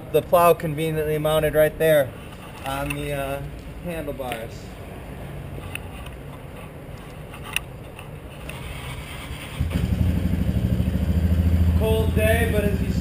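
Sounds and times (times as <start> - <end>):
engine starting and idling: 8.6 - 11.6.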